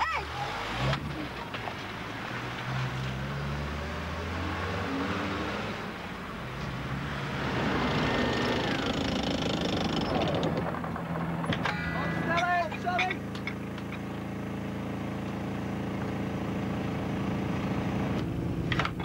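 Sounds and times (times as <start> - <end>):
military vehicle engine running: 5.7 - 19.0.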